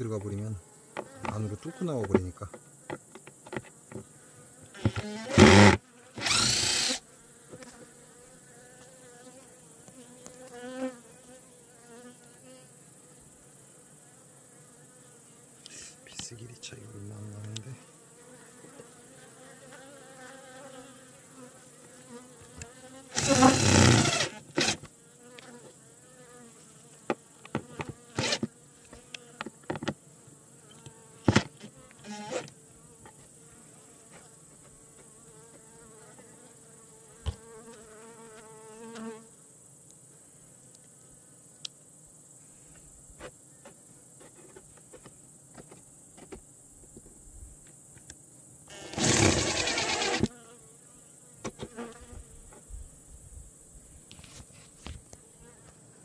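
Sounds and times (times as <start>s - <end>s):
bees buzzing: 3.8s - 13.3s, 17.7s - 34.2s, 34.9s - 39.3s, 48.7s - 52.3s
impact driver burst: 4.8s - 7.0s, 23.2s - 24.9s, 28.2s - 28.5s, 48.7s - 50.3s.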